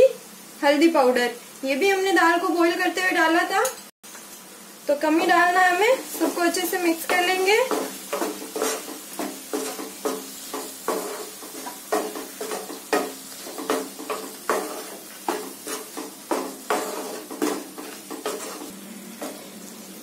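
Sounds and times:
food sizzling in oil: 0:00.0 - 0:20.0
spatula scraping a pan: 0:06.1 - 0:19.6.

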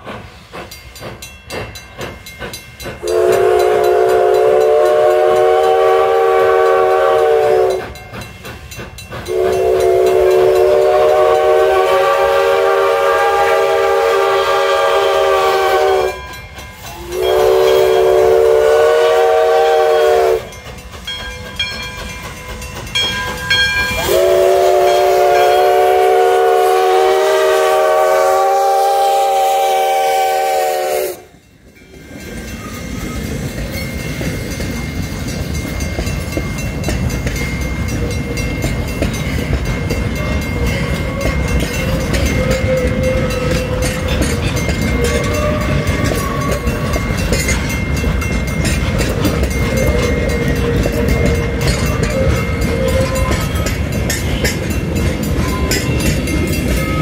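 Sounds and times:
steam exhaust chuffing: 0:00.0 - 0:57.0
steam hissing: 0:00.0 - 0:57.0
steam whistle blasts: 0:03.0 - 0:08.0, 0:09.2 - 0:20.6, 0:23.9 - 0:31.4, 0:40.8 - 0:47.1, 0:49.6 - 0:53.6.

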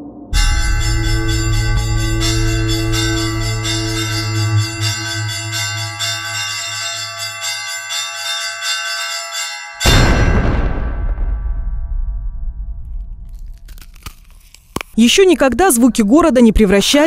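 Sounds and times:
low hum: 0:00.0 - 0:07.3, 0:10.4 - 0:15.0
church bells ringing a peal: 0:00.3 - 0:10.2
loud cannon shot: 0:09.9 - 0:13.3.

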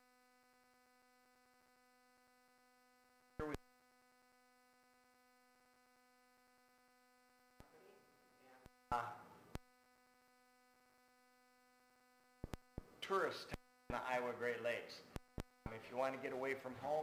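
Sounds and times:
faint electrical hum: 0:00.0 - 0:17.0
man's voice: 0:15.7 - 0:17.0.

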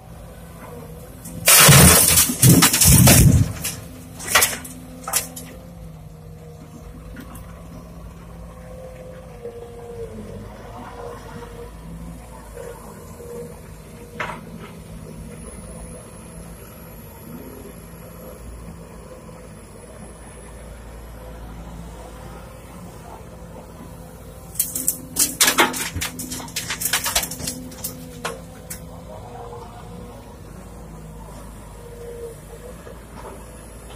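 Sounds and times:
excavator diesel engine running: 0:00.0 - 0:33.9
earth dropping into steel truck bed: 0:01.3 - 0:05.6, 0:24.6 - 0:28.4.

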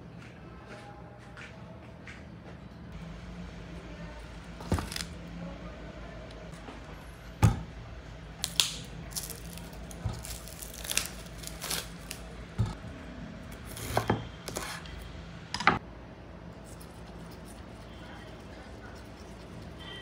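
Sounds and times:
faint low hum: 0:00.0 - 0:20.0
packaging crinkling and tearing: 0:08.4 - 0:12.4.

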